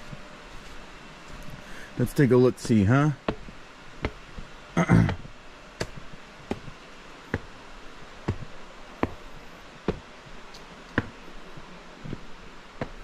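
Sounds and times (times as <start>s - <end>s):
sharp footsteps: 2.6s - 7.6s, 8.2s - 13.0s.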